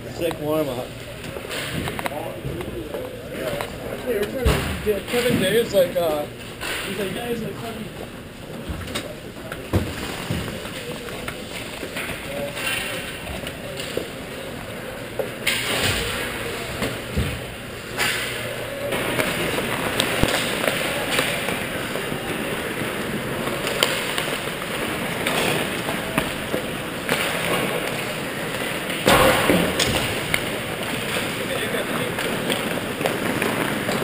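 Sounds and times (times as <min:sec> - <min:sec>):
hockey sticks and pucks clacking: 0:00.2 - 0:34.0
ice skates scraping and gliding: 0:17.9 - 0:34.0
loud thud: 0:29.0 - 0:30.3.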